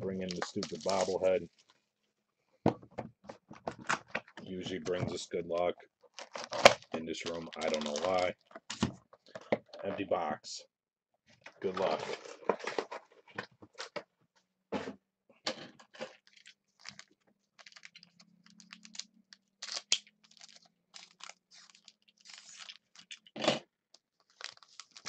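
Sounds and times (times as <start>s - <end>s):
foil wrapper tearing and crinkling: 0.3s - 1.3s, 6.1s - 8.3s, 16.2s - 23.3s, 24.1s - 25.0s.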